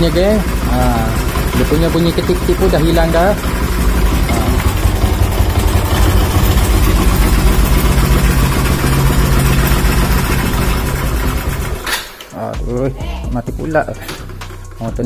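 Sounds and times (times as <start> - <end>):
motorcycle engine idling: 0.0 - 11.9, 12.5 - 15.0.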